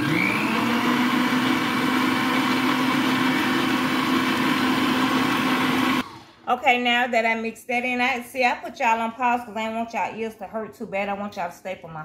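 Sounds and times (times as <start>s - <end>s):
stand mixer motor whining: 0.0s - 6.4s.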